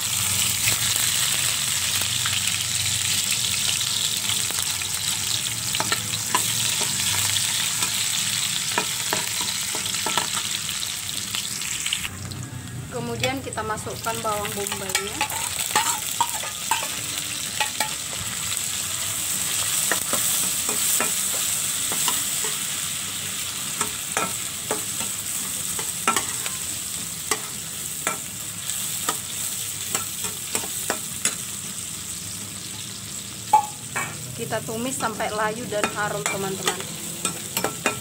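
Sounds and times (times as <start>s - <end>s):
onions sizzling in hot oil: 0.0s - 38.0s
metal spatula scraping wok: 14.6s - 22.8s.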